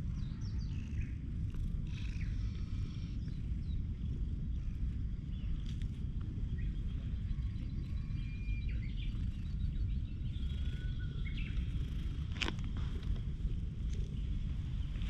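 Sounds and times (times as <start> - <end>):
low steady rumble: 0.0 - 15.0
birds chirping and whistling: 7.4 - 12.3.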